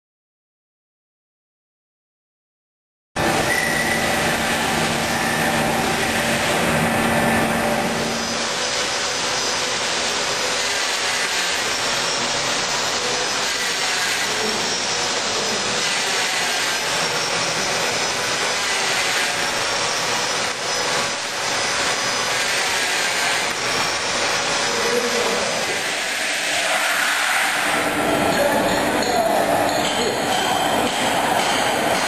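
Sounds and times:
factory machinery running: 3.2 - 32.0
faint high whistling tones: 3.4 - 4.2.

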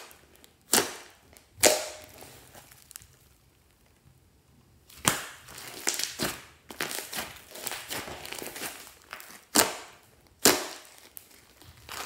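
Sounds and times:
slime air pockets popping: 0.0 - 3.1
slime squishing and crackling: 0.0 - 4.0, 4.8 - 12.0.

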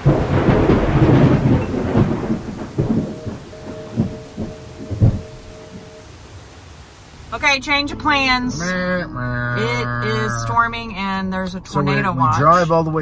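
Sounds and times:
rain: 0.0 - 8.8
thunder rumbling: 0.0 - 11.9.

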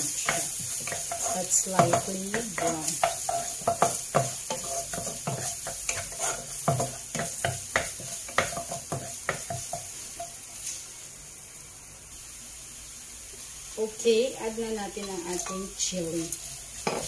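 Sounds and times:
wooden spatula scraping pan: 0.0 - 9.8
garlic sizzling in hot oil: 0.0 - 17.0.

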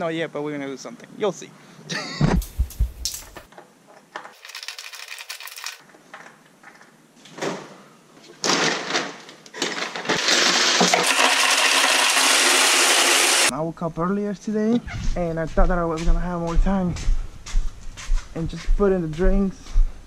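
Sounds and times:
ice clattering into container: 4.4 - 5.8, 9.6 - 13.5.

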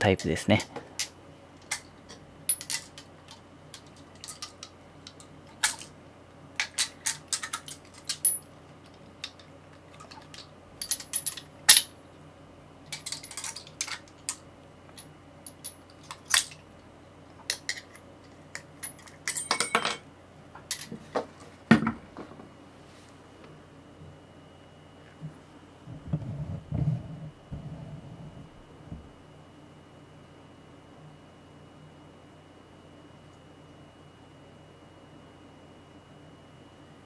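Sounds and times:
metal sockets clinking: 2.5 - 3.1, 6.6 - 8.4, 10.0 - 11.9, 12.9 - 14.4.

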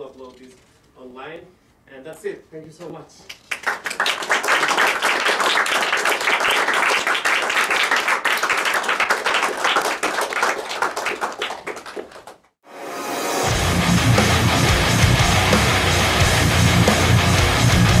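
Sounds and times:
audience applauding: 3.3 - 12.5.

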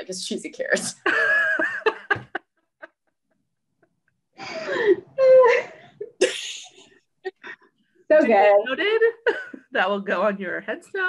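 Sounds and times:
women laughing: 1.0 - 6.7
woman's voice: 8.1 - 11.0.

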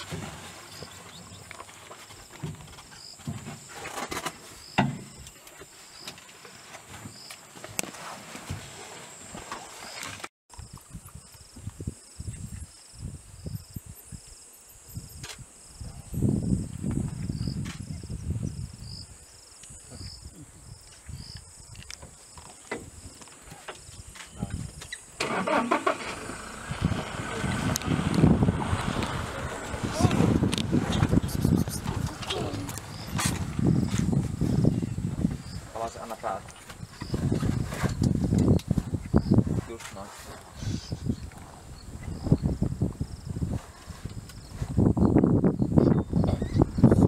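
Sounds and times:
insects buzzing: 8.8 - 47.0
insect chirps: 9.1 - 27.7, 30.5 - 39.6, 40.6 - 47.0
vehicle engine running low: 25.2 - 35.4.

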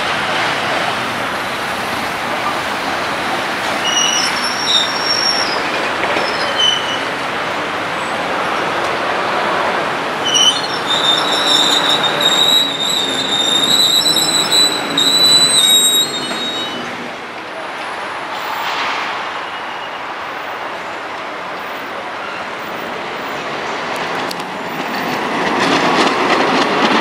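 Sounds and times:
train wheels squealing on rails: 2.4 - 7.3, 10.2 - 17.1, 18.3 - 20.6
train running rumble: 23.0 - 27.0.

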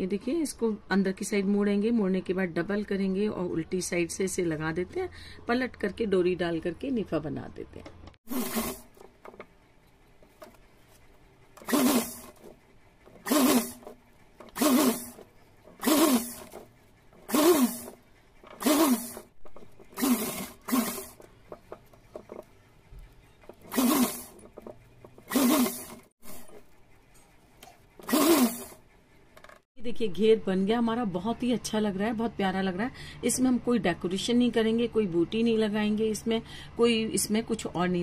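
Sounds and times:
electric sewing machine stitching: 8.3 - 9.0, 11.6 - 22.4, 23.5 - 26.7, 28.0 - 28.8.

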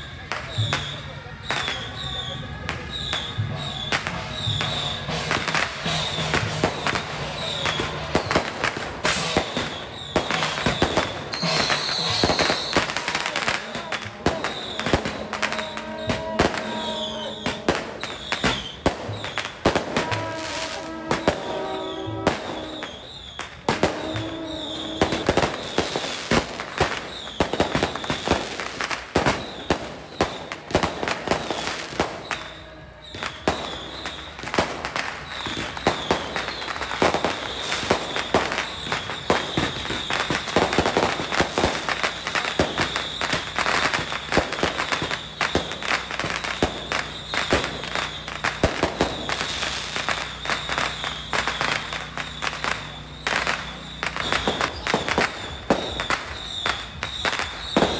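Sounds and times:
firecrackers crackling: 0.0 - 57.9
pitched melody: 10.4 - 26.2.

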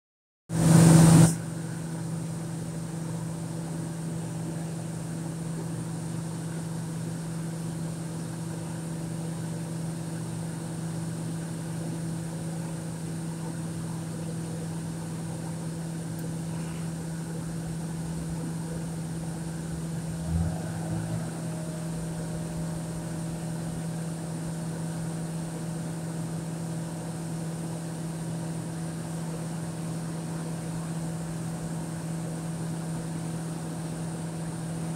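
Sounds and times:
heavy machinery drone: 16.4 - 25.7
loud rush of noise: 20.0 - 23.9.

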